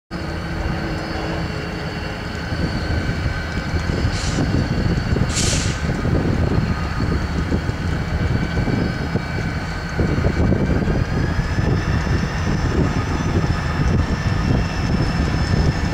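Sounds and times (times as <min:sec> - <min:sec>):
locomotives rumbling: 0:00.1 - 0:15.9
air hissing: 0:04.0 - 0:06.0.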